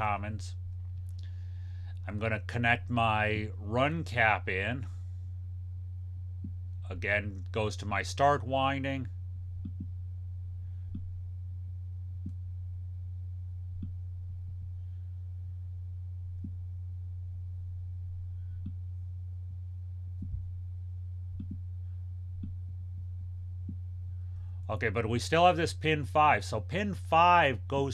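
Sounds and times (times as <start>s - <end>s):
steady low hum: 0.0s - 27.9s
mouse clicks: 9.6s - 9.9s, 21.4s - 21.6s.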